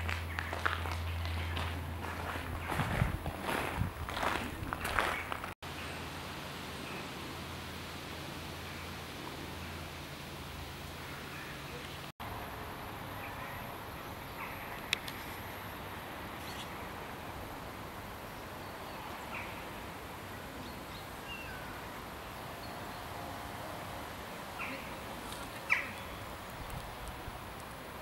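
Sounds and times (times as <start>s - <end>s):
steady background hiss: 0.0s - 28.0s.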